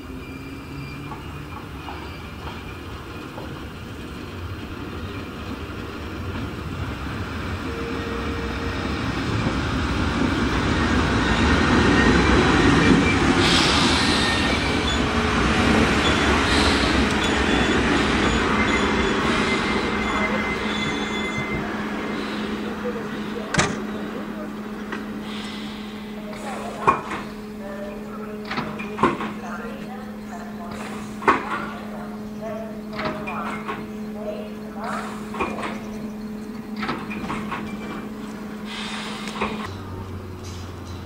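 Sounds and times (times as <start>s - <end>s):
high wheel squeal: 0.0s - 3.4s, 10.8s - 24.1s, 25.2s - 39.7s
train wheels rumbling on rails: 0.0s - 41.0s.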